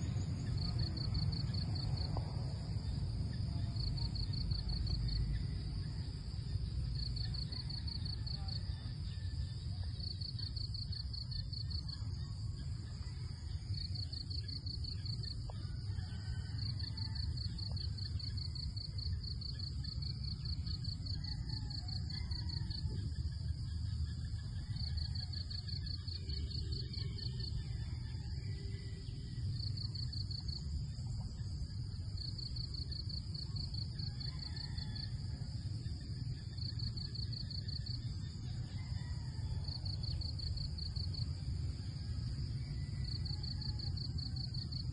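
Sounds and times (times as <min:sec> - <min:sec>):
steady low rumble: 0:00.0 - 0:15.9
insects chirping in trills: 0:00.0 - 0:44.9.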